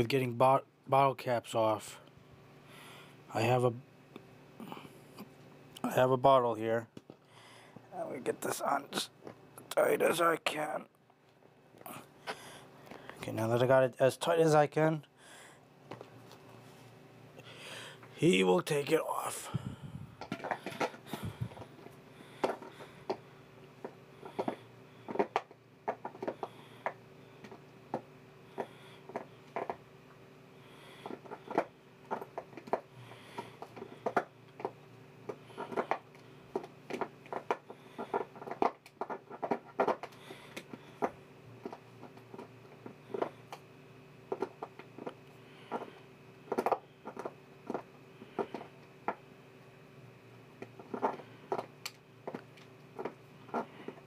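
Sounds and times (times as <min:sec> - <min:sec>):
faint steady hum: 0:00.0 - 0:54.0
dog teeth gnawing plastic bottle: 0:24.2 - 0:27.6, 0:28.5 - 0:29.8, 0:30.9 - 0:43.6, 0:44.3 - 0:49.2, 0:50.6 - 0:54.0.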